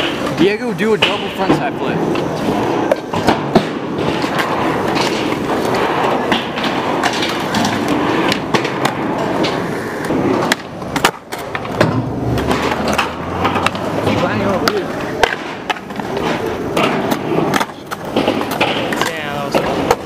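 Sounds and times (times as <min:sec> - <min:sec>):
skateboard clacks: 0:00.0 - 0:20.0
skateboard wheels rolling on concrete: 0:00.0 - 0:20.0.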